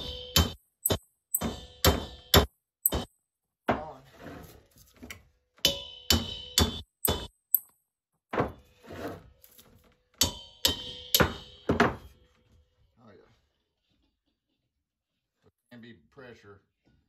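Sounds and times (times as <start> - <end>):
hammer striking steel tank: 0.0 - 4.0, 5.6 - 8.6, 10.2 - 12.2.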